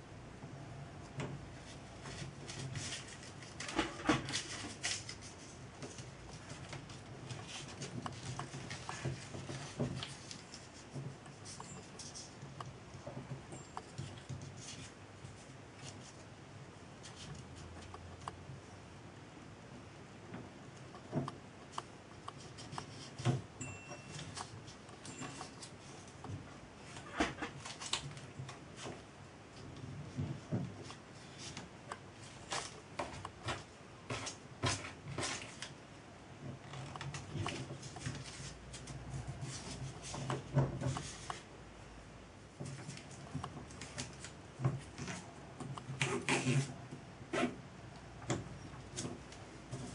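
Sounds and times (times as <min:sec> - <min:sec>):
rustling of wrapping material: 0:01.5 - 0:16.3, 0:22.4 - 0:35.8, 0:36.4 - 0:41.5
tape rustling and rubbing: 0:01.6 - 0:12.6, 0:13.9 - 0:16.3, 0:36.6 - 0:41.5, 0:42.6 - 0:47.6.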